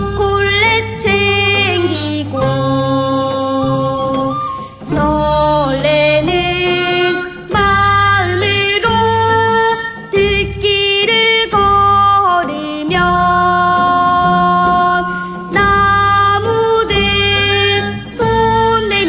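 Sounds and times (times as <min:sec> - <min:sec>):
child singing: 0:00.0 - 0:19.0
instrumental accompaniment: 0:00.0 - 0:19.0.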